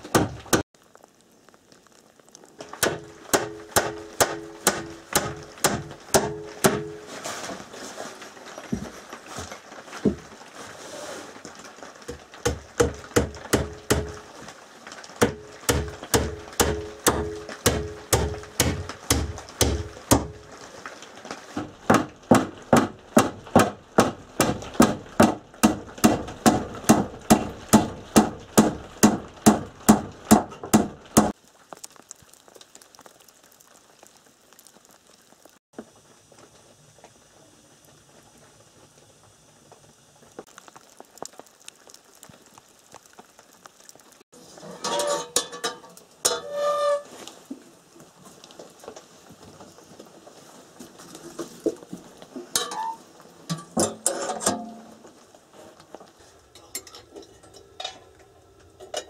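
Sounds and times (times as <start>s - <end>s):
hammer driving nails into wood: 21.9s - 31.3s.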